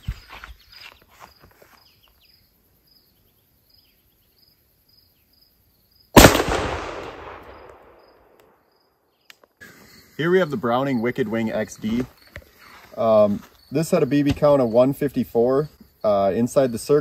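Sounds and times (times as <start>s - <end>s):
faint insect chirps: 0.0s - 6.2s, 7.4s - 17.0s
shotgun shot: 6.2s - 8.2s.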